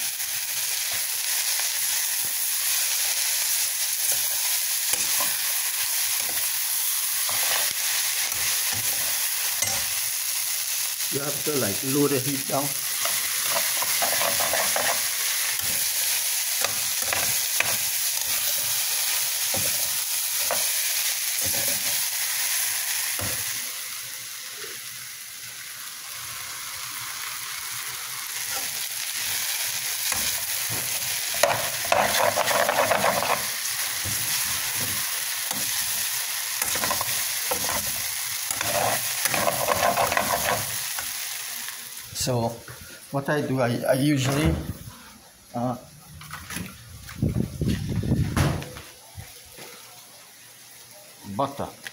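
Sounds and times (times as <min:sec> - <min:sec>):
noodles sizzling in frying pan: 0:00.0 - 0:43.6, 0:48.8 - 0:51.9
metal spatula scraping pan: 0:13.0 - 0:15.8, 0:31.3 - 0:33.6, 0:36.6 - 0:40.7.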